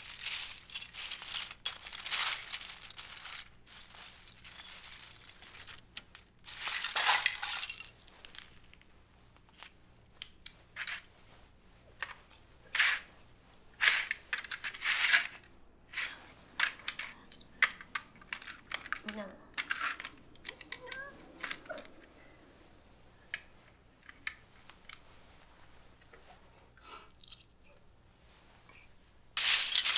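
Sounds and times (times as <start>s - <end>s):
plastic bricks clattering: 0.0s - 8.8s, 13.8s - 22.0s, 29.4s - 29.9s.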